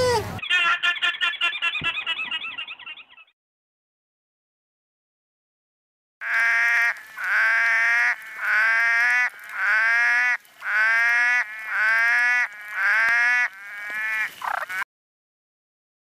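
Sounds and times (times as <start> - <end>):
frog calling: 6.2 - 14.8.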